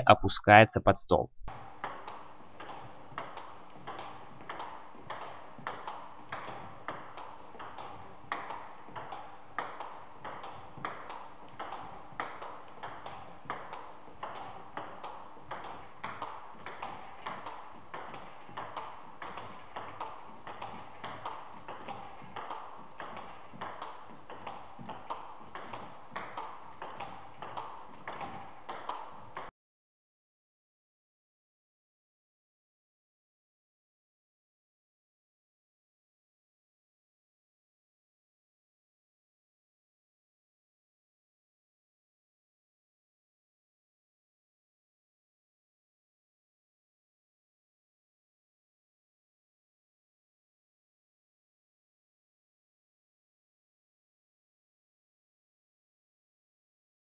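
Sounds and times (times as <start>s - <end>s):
table tennis ball clicking: 1.6s - 29.5s.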